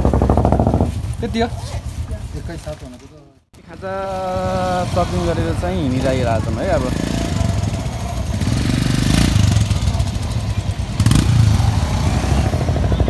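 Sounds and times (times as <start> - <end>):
motorcycles riding past: 3.7 - 13.0.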